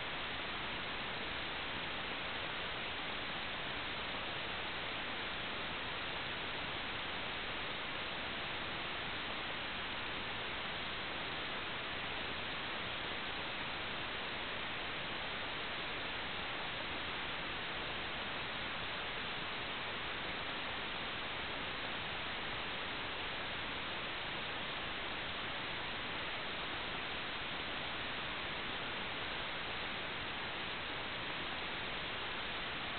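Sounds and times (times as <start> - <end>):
static hiss: 0.0 - 32.9.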